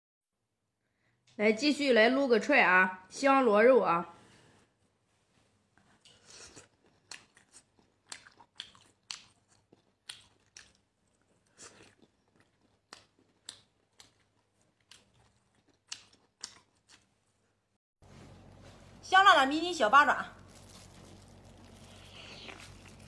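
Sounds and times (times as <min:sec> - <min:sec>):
person chewing and biting: 0:06.0 - 0:17.4, 0:20.5 - 0:23.0.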